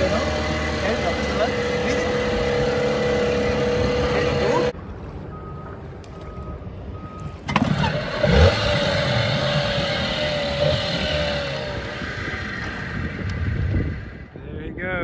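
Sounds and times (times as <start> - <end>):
outboard motor running: 0.0 - 4.7
wind: 0.0 - 15.0
short electronic beeps: 5.3 - 7.4.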